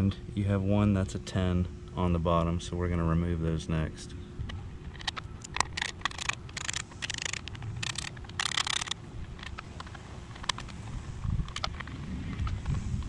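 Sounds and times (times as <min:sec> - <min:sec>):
socket ratchet clicking: 0:05.0 - 0:10.7.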